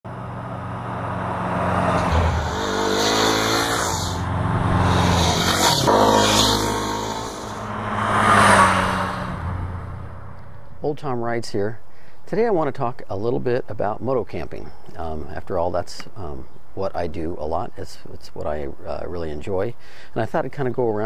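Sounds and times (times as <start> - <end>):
motorcycle passing by: 0.1 - 10.8.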